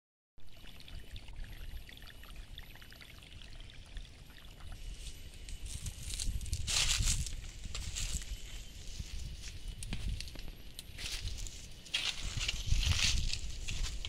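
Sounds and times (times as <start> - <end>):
stream trickling and babbling: 0.4 - 9.7.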